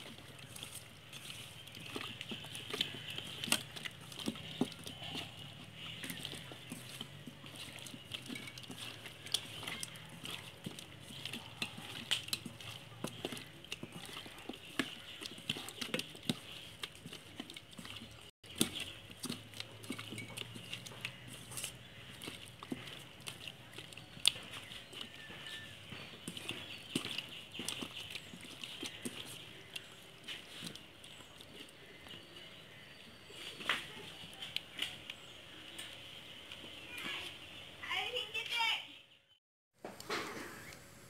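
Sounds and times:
wet squelches of kneading chicken: 0:00.0 - 0:38.4.

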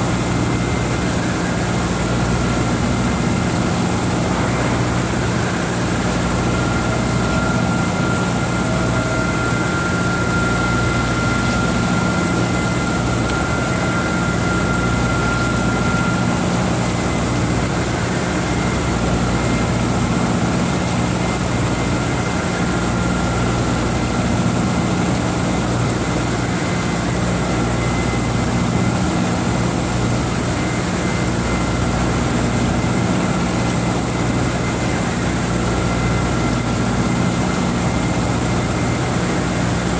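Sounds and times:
high whine: 0:00.0 - 0:17.8
milling machine cutting metal: 0:00.4 - 0:18.0.

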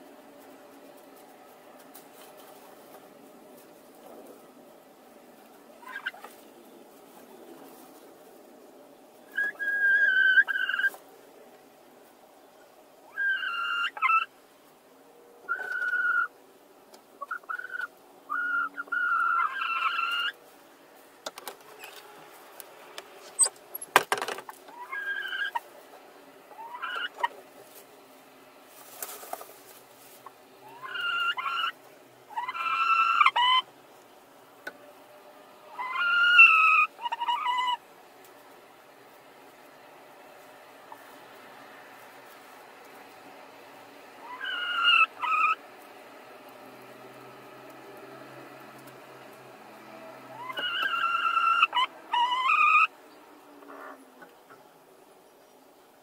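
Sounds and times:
hens squawking: 0:05.7 - 0:06.5, 0:09.3 - 0:11.0, 0:13.1 - 0:14.3, 0:15.5 - 0:16.4, 0:17.2 - 0:20.4, 0:24.5 - 0:27.8, 0:30.1 - 0:33.8, 0:35.7 - 0:37.9, 0:43.8 - 0:46.0, 0:50.3 - 0:53.0.

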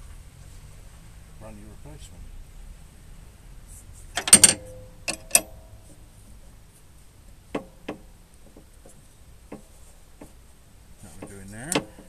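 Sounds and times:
metal tools clinking: 0:04.2 - 0:05.6.

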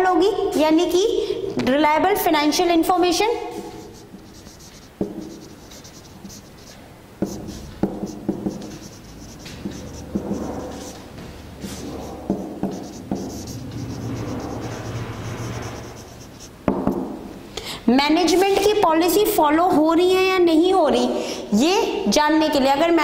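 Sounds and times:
marker squeaking on whiteboard: 0:03.7 - 0:16.6
marker tapping on whiteboard: 0:04.5 - 0:05.9, 0:07.2 - 0:13.7, 0:16.7 - 0:17.1.

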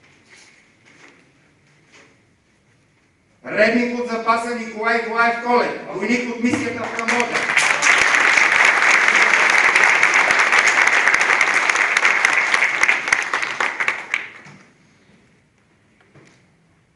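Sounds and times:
audience applauding: 0:06.6 - 0:14.7.

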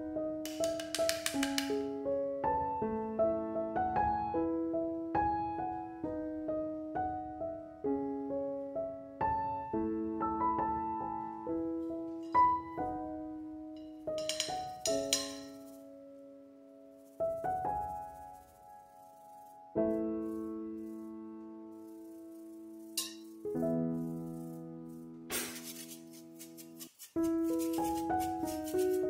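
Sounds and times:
slow piano melody: 0:00.0 - 0:29.0.

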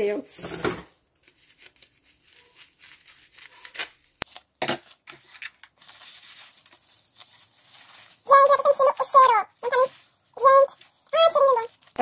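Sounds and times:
bubble wrap crinkling: 0:00.9 - 0:12.0
scissors cutting bubble wrap: 0:01.2 - 0:07.7, 0:10.9 - 0:12.0.

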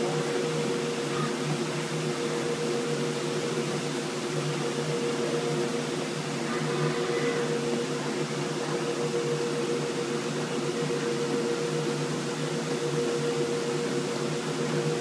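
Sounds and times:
cutting machine humming: 0:00.0 - 0:15.0.

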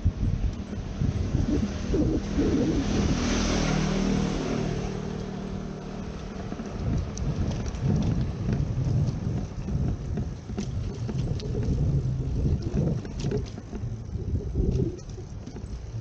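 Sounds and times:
low street rumble: 0:00.0 - 0:16.0
light ticks: 0:05.1 - 0:05.4.

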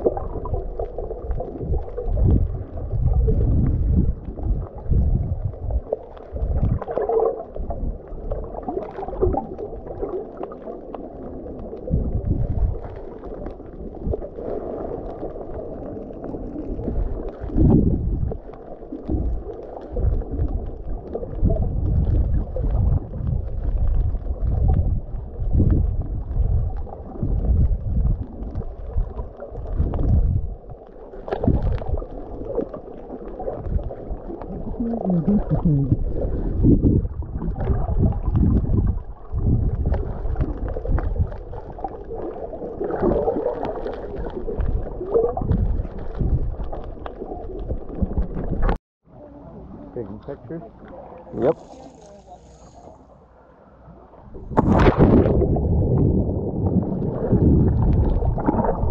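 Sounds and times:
underwater sloshing and gurgling: 0:00.0 - 0:58.9.

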